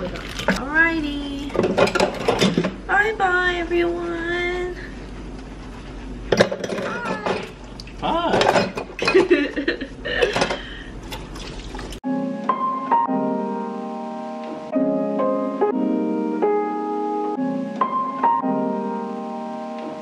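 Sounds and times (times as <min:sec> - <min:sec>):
gentle piano chords: 0:12.0 - 0:20.0.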